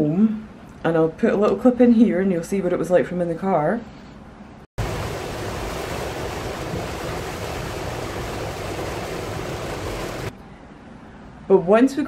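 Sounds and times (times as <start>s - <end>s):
heavy rain on car roof: 4.8s - 10.3s.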